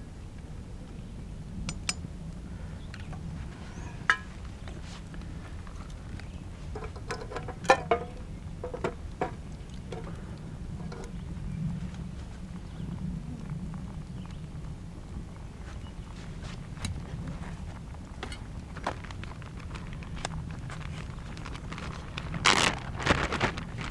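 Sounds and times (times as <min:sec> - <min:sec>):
low rumble: 0:00.0 - 0:23.9
metal cookware clinking: 0:06.8 - 0:10.1.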